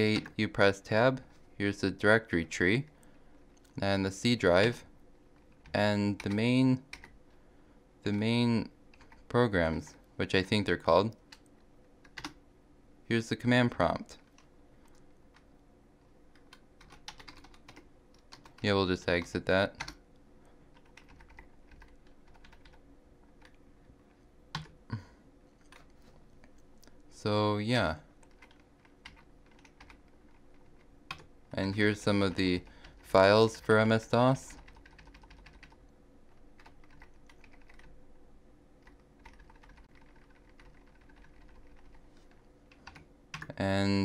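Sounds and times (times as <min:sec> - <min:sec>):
keyboard keys clicking: 0:16.3 - 0:20.0, 0:20.8 - 0:22.8, 0:24.5 - 0:24.8, 0:34.6 - 0:35.8, 0:36.6 - 0:37.9, 0:38.8 - 0:41.9.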